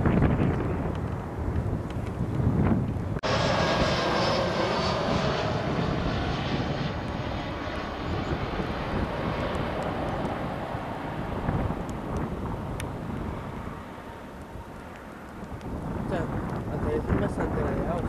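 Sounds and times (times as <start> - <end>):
low aircraft rumble: 0.0 - 18.0
jet engines whining: 3.2 - 15.6.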